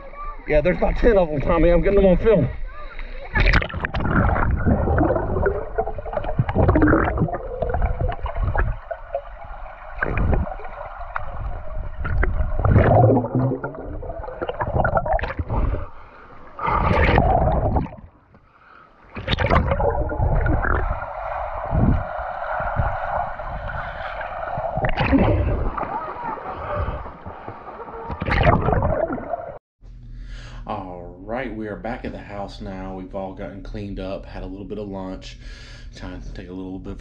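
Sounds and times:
low underwater rumble: 3.2 - 18.3, 19.2 - 29.6
underwater water rushing and gurgling: 3.2 - 29.6.

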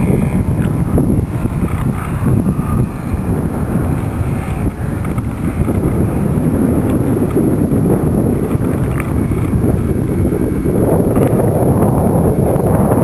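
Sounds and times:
faint model airplane engine: 0.0 - 13.0
wind buffeting microphone: 0.0 - 13.0.

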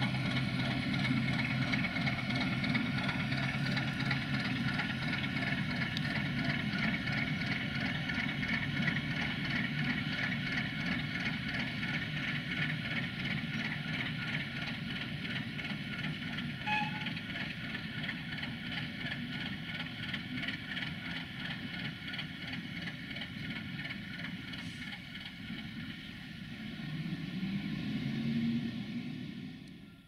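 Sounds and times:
diesel locomotive engine running: 0.0 - 30.0
brief high note: 16.6 - 17.1.

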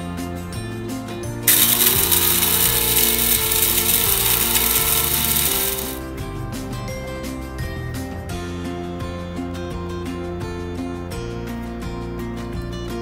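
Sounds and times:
blade coffee grinder whirring: 1.5 - 6.0.

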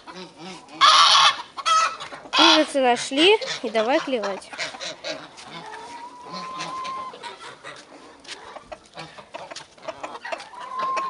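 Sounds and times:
chickens clucking: 0.0 - 11.0
long hen call: 5.7 - 7.3, 10.6 - 11.0.

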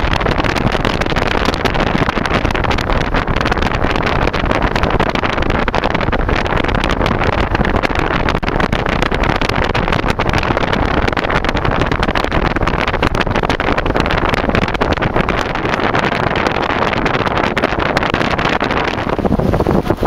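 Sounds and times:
car wind and road noise: 0.0 - 20.0.

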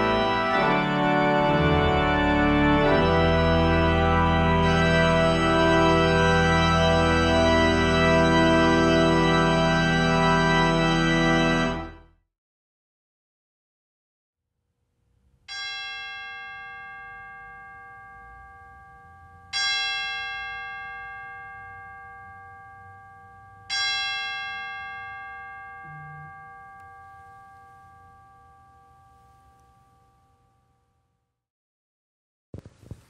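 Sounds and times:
bell ringing: 15.5 - 30.4.

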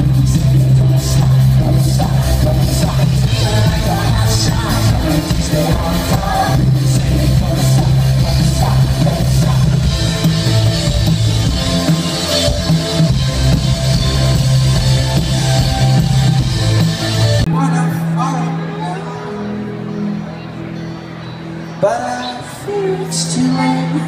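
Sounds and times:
drum kit: 0.0 - 17.6
bass guitar: 0.0 - 21.8
electric guitars: 0.0 - 24.0
keyboard: 0.0 - 24.0.

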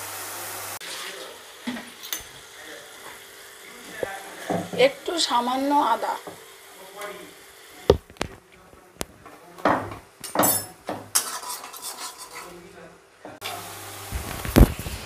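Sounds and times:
faint sizzle: 0.0 - 15.0
metal spatula scraping a frying pan: 11.1 - 12.6.

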